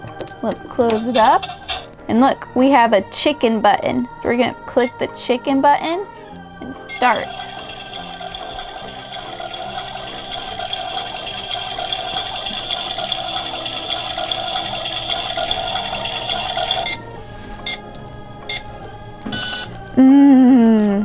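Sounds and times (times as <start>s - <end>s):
toy oven electronic sound: 0.9s - 1.9s, 6.8s - 17.0s, 17.6s - 17.9s, 18.5s - 18.7s, 19.3s - 19.7s.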